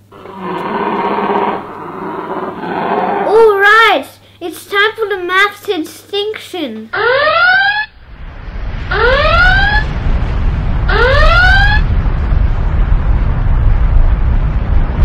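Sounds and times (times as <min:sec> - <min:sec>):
whooping alarm tone: 0:06.9 - 0:08.0, 0:08.9 - 0:10.0, 0:10.9 - 0:11.9
deep rumble: 0:07.9 - 0:15.0.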